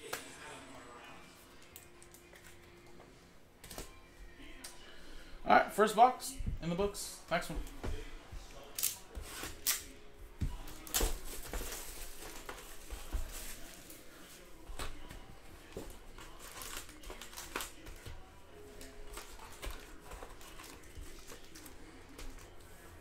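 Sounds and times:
foil packs rustling: 10.7s - 14.4s, 16.1s - 18.1s, 18.8s - 22.6s
plastic wrap crinkling and tearing: 16.1s - 18.0s, 18.8s - 22.6s.

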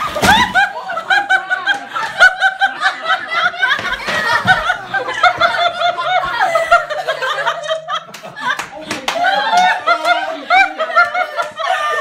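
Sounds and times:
high-pitched laughter: 9.3s - 12.0s.

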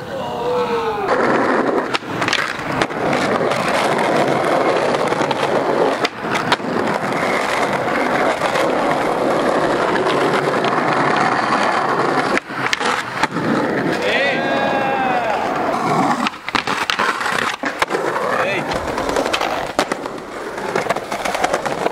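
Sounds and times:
skateboard wheels rolling on concrete: 0.0s - 21.9s
skateboard clacking on ground: 1.0s - 21.9s.

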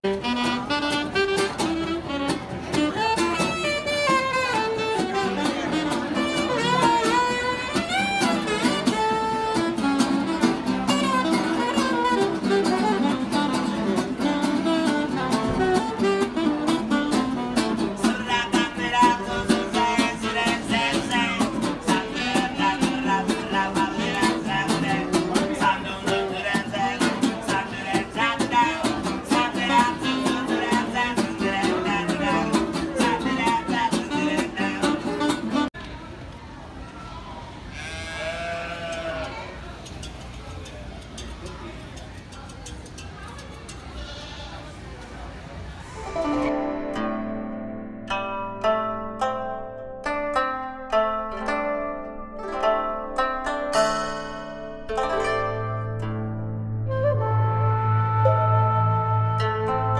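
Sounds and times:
saxophone playing: 0.0s - 25.4s, 28.9s - 30.8s, 31.7s - 35.8s, 45.9s - 47.4s
guitar plucked notes: 0.0s - 35.7s, 45.9s - 59.9s.

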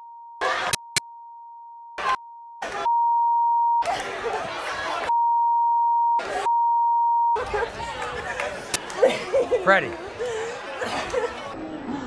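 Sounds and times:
censor bleep tone: 0.0s - 3.8s, 5.1s - 7.4s.

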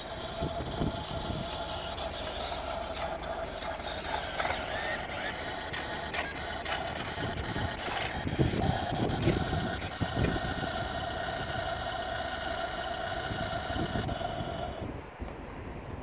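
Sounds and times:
scattered clicks: 0.0s - 15.4s
electric drive whine: 0.0s - 15.6s.

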